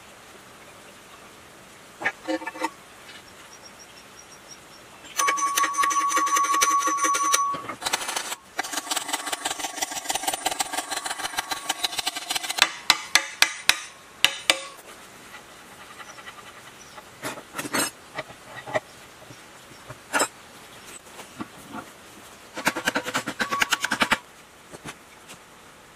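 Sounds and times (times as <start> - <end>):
hammer striking metal: 5.2 - 7.8, 10.2 - 14.8
light metallic taps and scraping: 14.5 - 21.9.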